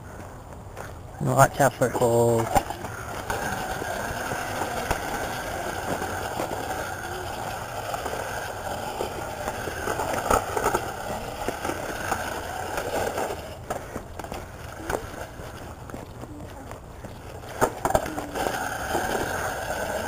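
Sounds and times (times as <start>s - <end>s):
wheels and frame rattling: 0.0s - 20.0s
electric scooter motor whine: 2.4s - 20.0s.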